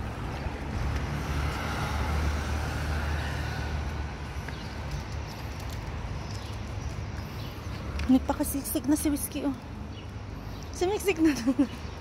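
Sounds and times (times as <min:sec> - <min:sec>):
motor scooter passing: 0:00.0 - 0:04.8
traffic noise: 0:00.0 - 0:12.0.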